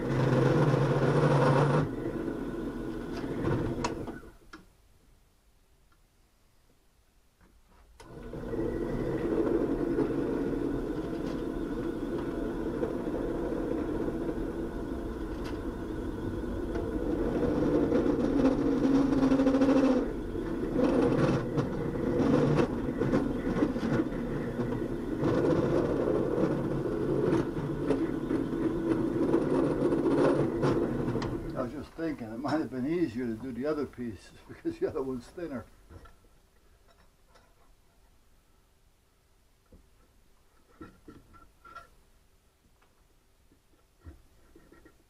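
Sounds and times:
drill bit cutting wood: 0.0 - 4.1, 8.1 - 31.6
drill press motor running: 0.0 - 4.3, 8.0 - 31.8.

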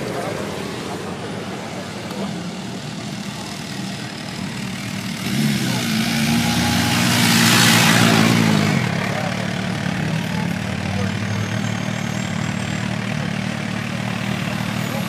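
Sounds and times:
car engine running low: 0.0 - 15.0
motorcycle passing: 0.0 - 15.0.

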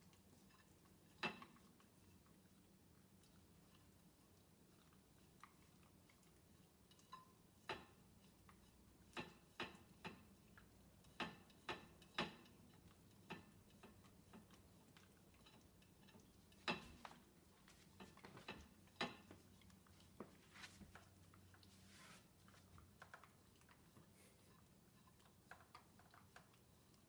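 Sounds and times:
dog licking plates: 0.0 - 27.0
clicks and taps on plates: 6.9 - 8.0, 9.1 - 10.4, 11.1 - 14.6, 15.4 - 17.2, 17.9 - 19.4.

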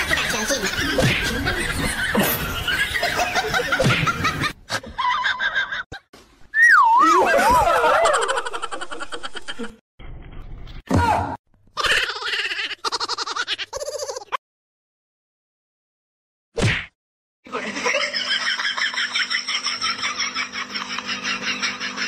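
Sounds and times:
person laughing: 0.5 - 5.9, 7.0 - 9.8, 11.8 - 14.4.

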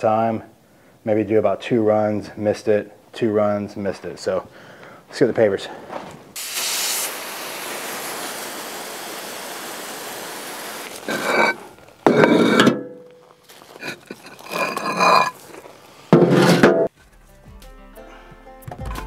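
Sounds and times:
hose nozzle spraying water: 6.4 - 12.6
concrete pavers clacking and scraping: 10.9 - 16.9.

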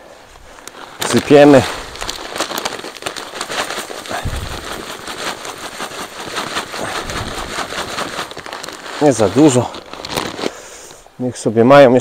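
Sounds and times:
bird seed pouring: 0.6 - 10.5.

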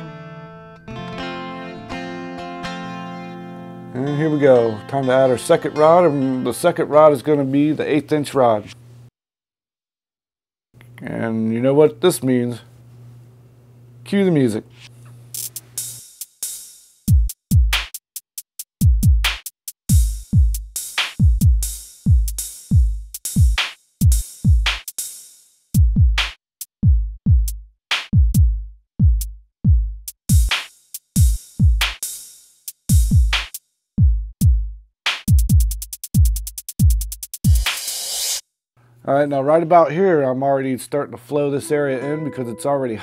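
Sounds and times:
fast hi-hat roll: 15.3 - 18.0, 19.4 - 25.5, 30.3 - 33.6, 35.4 - 38.4
drum machine beat: 15.3 - 25.2, 25.8 - 38.3.

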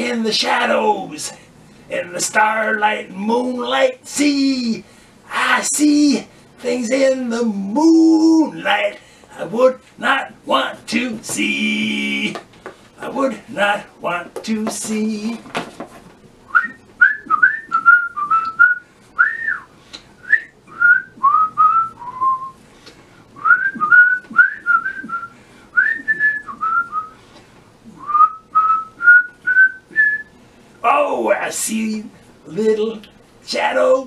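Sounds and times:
person whistling a tune: 16.5 - 22.6, 23.4 - 27.2, 28.0 - 30.3.

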